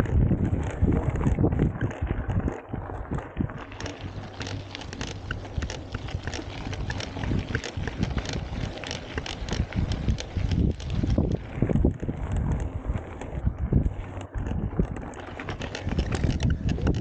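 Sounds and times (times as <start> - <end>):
bike clicking and rattling: 0.0 - 17.0
tyres rolling over gravel: 0.0 - 17.0
wind rumble on microphone: 0.0 - 17.0.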